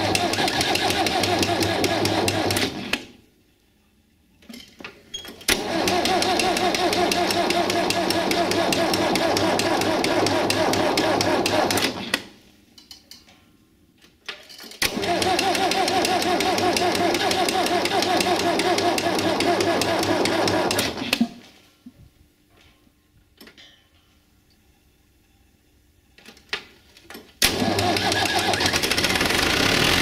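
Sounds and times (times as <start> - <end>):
engine starting: 0.0 - 3.1, 5.5 - 12.1, 14.8 - 21.4, 27.4 - 30.0.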